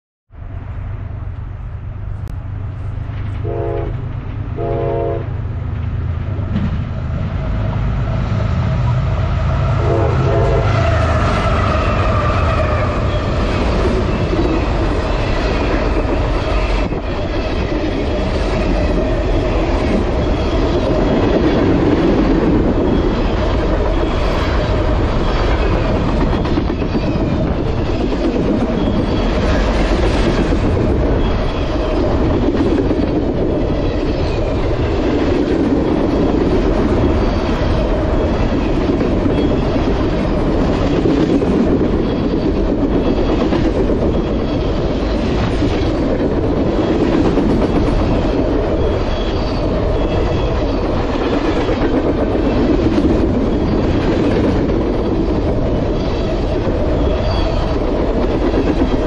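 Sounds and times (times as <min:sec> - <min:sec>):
train horn blasts: 0:03.4 - 0:05.4, 0:09.6 - 0:11.1
freight train wheels clattering: 0:05.3 - 0:59.0.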